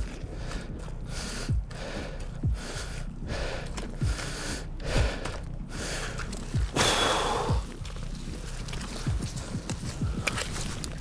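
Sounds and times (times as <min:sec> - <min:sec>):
man breathing hard: 0:00.1 - 0:07.9
boots stepping in mud: 0:03.4 - 0:11.0.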